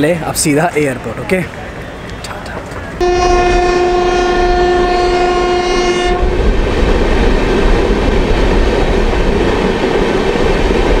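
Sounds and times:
train running on rails: 0.0s - 11.0s
train horn: 3.0s - 6.4s.

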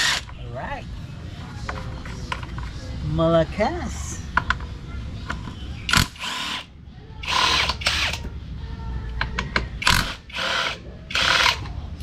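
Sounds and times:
battery power tool running: 9.8s - 11.6s.

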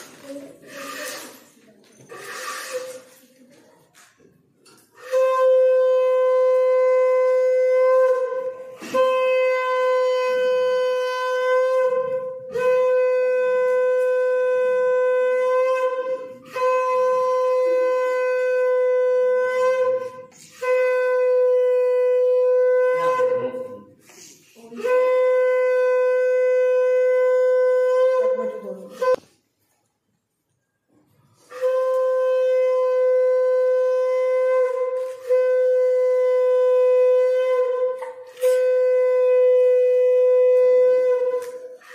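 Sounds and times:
conch shell blasts: 2.1s - 3.1s, 5.0s - 24.1s, 31.4s - 41.9s.

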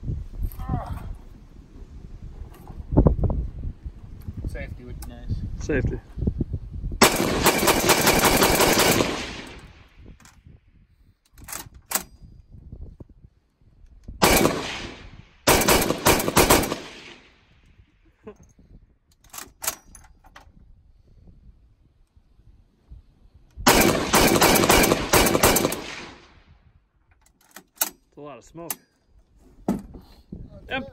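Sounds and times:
machine gun bursts: 7.0s - 9.6s, 14.2s - 17.0s, 23.7s - 26.2s
short sharp gunshot cracks: 14.2s - 17.4s.

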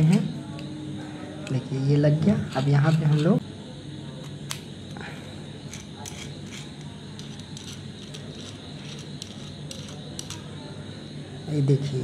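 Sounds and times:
steady low hum: 0.0s - 12.0s
metallic clicks and scrapes: 5.7s - 10.4s.

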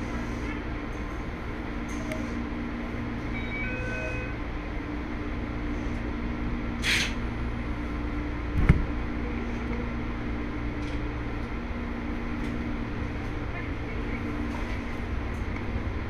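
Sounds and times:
train equipment humming: 0.0s - 16.0s
air hiss: 6.8s - 7.2s.

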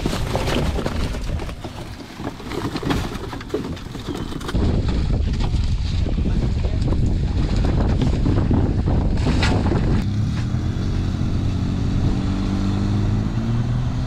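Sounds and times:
wind on microphone: 4.5s - 14.0s.

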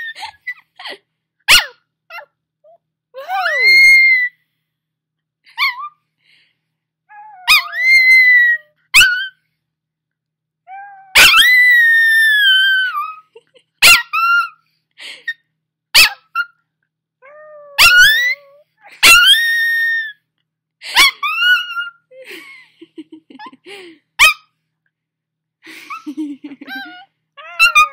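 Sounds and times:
puppy yipping: 1.5s - 2.3s, 7.1s - 9.4s, 10.7s - 14.6s, 16.0s - 16.6s, 17.2s - 20.2s, 20.9s - 22.1s, 24.2s - 24.5s, 26.6s - 27.9s
puppy howling: 7.1s - 9.4s, 10.7s - 14.6s, 17.2s - 20.2s, 21.0s - 22.0s, 26.6s - 27.9s.

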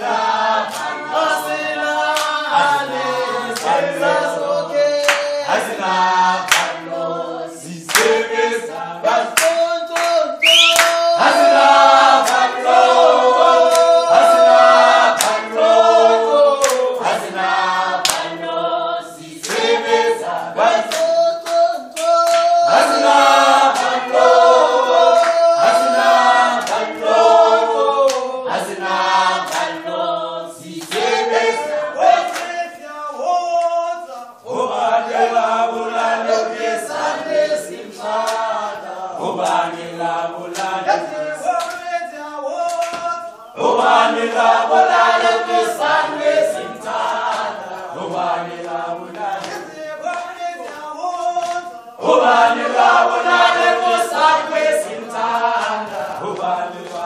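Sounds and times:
group singing unaccompanied: 0.0s - 57.0s
sharp hand claps: 0.6s - 1.0s, 2.1s - 2.4s, 3.5s - 3.8s, 5.0s - 5.4s, 6.4s - 6.8s, 7.9s - 8.2s, 9.3s - 11.5s, 12.1s - 12.6s, 13.6s - 14.0s, 15.1s - 15.4s, 16.6s - 17.1s, 18.0s - 18.4s, 19.4s - 19.8s, 20.8s - 22.8s, 23.7s - 24.2s, 26.5s - 27.1s, 28.0s - 28.3s, 29.4s - 29.9s, 30.6s - 31.2s, 32.2s - 32.7s, 38.2s - 38.5s, 39.4s - 39.7s, 40.4s - 40.8s, 41.5s - 42.0s, 42.6s - 43.4s, 46.9s - 51.8s, 53.6s - 57.0s.

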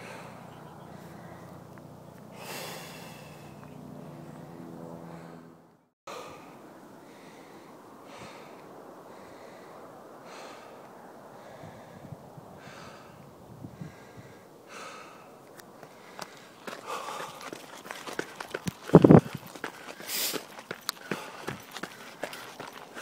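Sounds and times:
steady low tone: 0.0s - 7.1s
runner breathing hard: 0.0s - 23.0s
wind: 0.0s - 23.0s
microphone handling noise: 18.9s - 19.4s.

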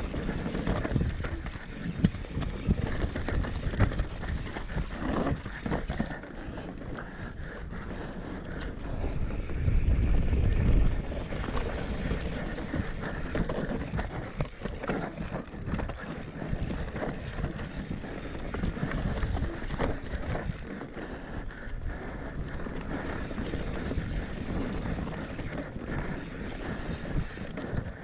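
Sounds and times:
bike rattles and knocks: 0.0s - 7.2s, 8.6s - 20.8s
bike tyres rolling on dirt: 0.0s - 28.0s
wind buffeting microphone: 0.0s - 28.0s.

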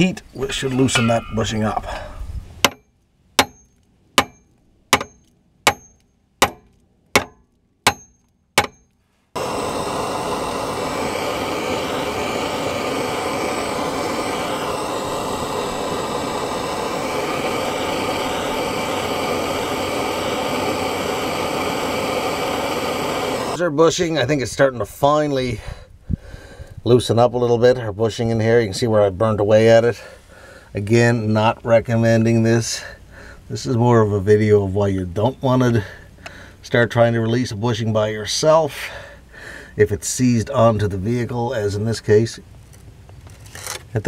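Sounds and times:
gas torch hissing: 9.4s - 23.6s.

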